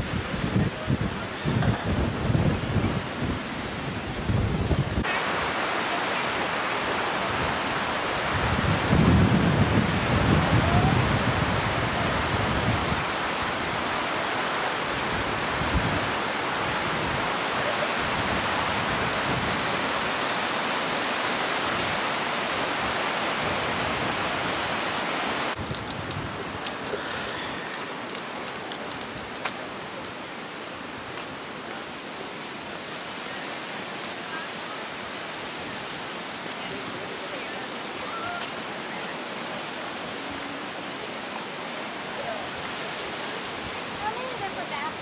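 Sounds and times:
wind buffeting the microphone: 0:00.0 - 0:05.6, 0:06.3 - 0:31.4
mountain stream rushing over stones: 0:00.0 - 0:45.0.

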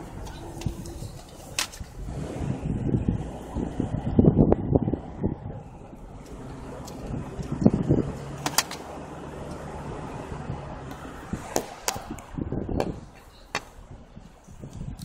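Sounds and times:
vehicle engine humming: 0:00.0 - 0:15.0
sharp clicks and knocks: 0:08.4 - 0:08.9.

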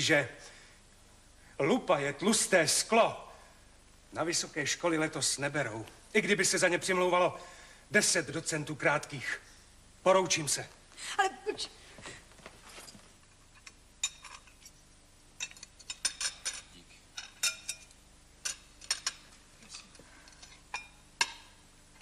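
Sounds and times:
dishes and cutlery clinking: 0:12.7 - 0:14.8, 0:15.4 - 0:21.5.

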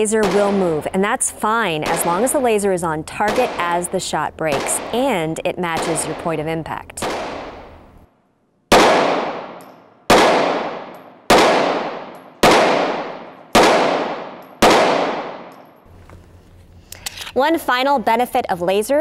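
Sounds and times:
pistol shots echoing: 0:00.0 - 0:00.9, 0:01.8 - 0:02.6, 0:03.2 - 0:07.8, 0:08.7 - 0:15.7.

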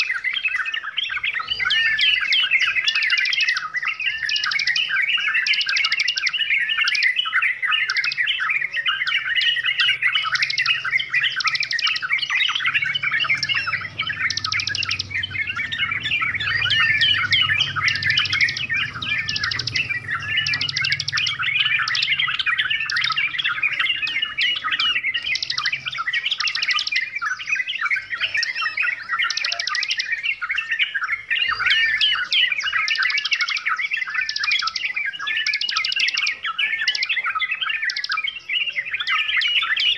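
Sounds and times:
birds chirping and whistling: 0:00.0 - 0:39.9
fast rattling bird trills: 0:00.0 - 0:39.9.

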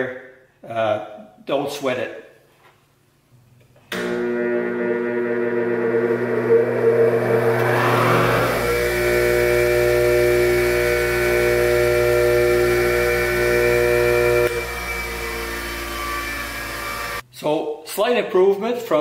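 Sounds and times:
bench grinder humming: 0:04.0 - 0:17.2.

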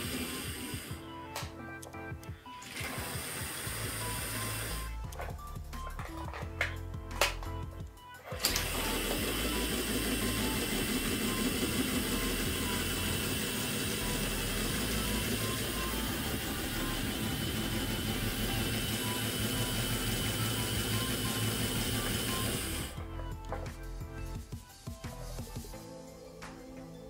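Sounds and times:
small electric motor whirring: 0:00.0 - 0:01.0, 0:02.6 - 0:05.0, 0:08.3 - 0:23.0.

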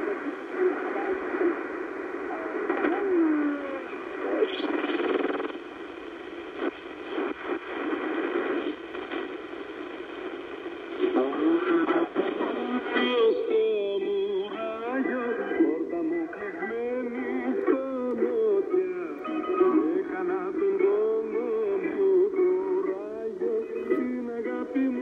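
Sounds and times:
another radio station signal: 0:00.0 - 0:25.0
radio static: 0:00.0 - 0:25.0
person speaking over shortwave radio: 0:10.9 - 0:25.0.

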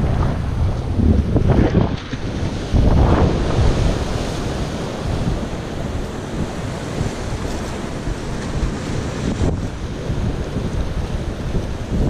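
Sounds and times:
sea surf breaking on rocks: 0:00.0 - 0:12.0
wind buffeting microphone: 0:00.0 - 0:12.0.

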